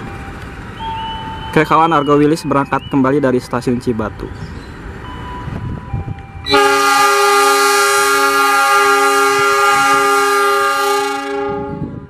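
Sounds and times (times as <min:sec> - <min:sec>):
locomotive air horn blast: 0:06.5 - 0:12.0.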